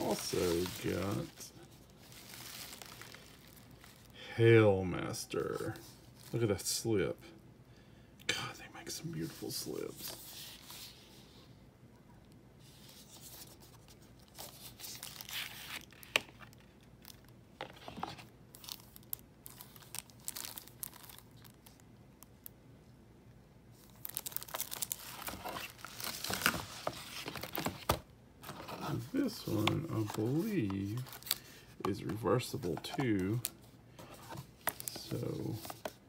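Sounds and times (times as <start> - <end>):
plastic wrap crinkling: 0.0 - 4.2, 14.3 - 21.8, 23.7 - 36.0.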